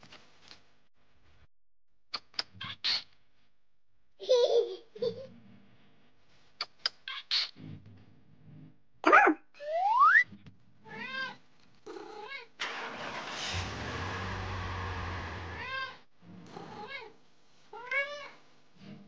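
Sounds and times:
rising whistle-like tone: 0:09.6 - 0:10.2.

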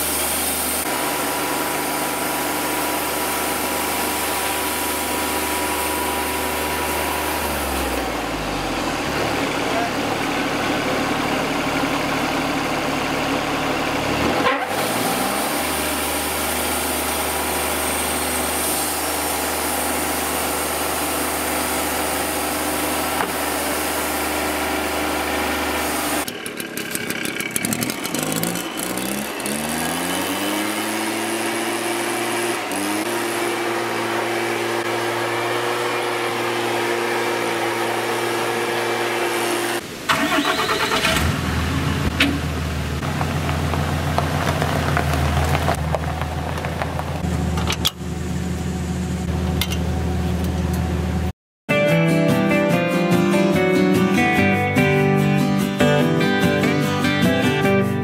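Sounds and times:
band saw cutting logs: 0:00.0 - 0:09.7, 0:14.0 - 0:41.4
sawmill engine running: 0:00.0 - 0:51.3.

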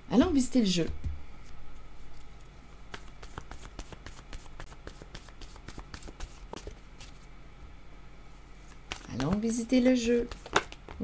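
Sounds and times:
cards being shuffled: 0:01.5 - 0:07.3, 0:08.7 - 0:11.0.

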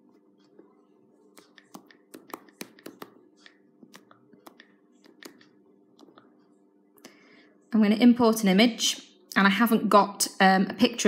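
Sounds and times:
faint steady hum: 0:00.0 - 0:11.0
taps on touchscreen keyboard: 0:01.3 - 0:06.2.

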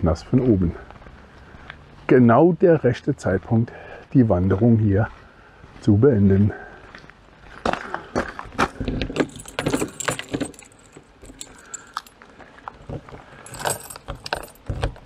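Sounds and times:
keys jangling: 0:09.0 - 0:12.2, 0:13.4 - 0:15.0.

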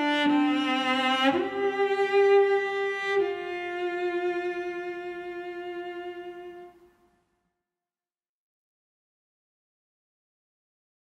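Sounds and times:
slow bowed string music: 0:00.0 - 0:07.2.

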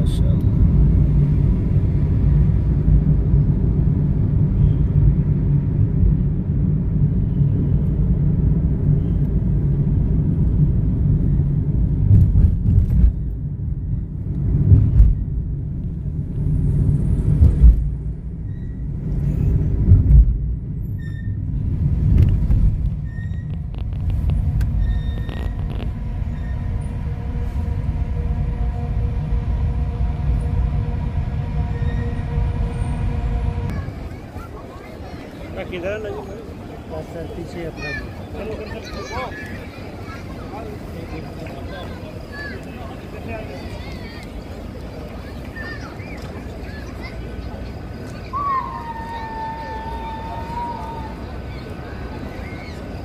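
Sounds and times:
car cabin rumble: 0:22.0 - 0:33.9.

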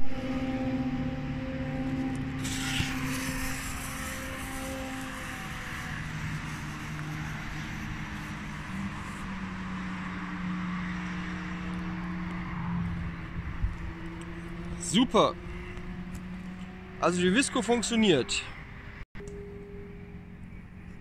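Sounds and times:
low engine drone: 0:00.0 - 0:21.0.

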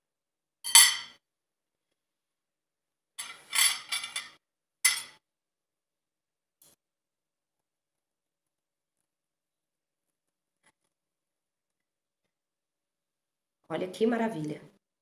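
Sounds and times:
cutlery clinking on plate: 0:00.7 - 0:01.2, 0:03.2 - 0:05.2.

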